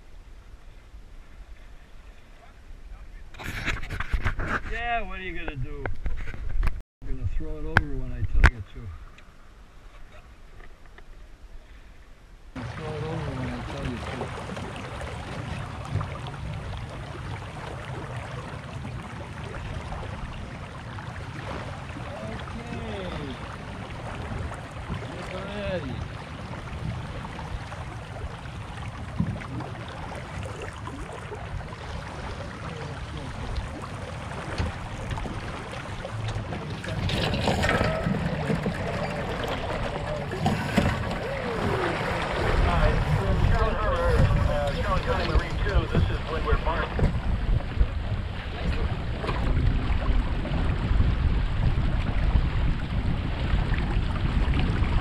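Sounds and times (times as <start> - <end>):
water rushing along boat hull: 0.0 - 55.0
wind buffeting microphone: 12.8 - 55.0.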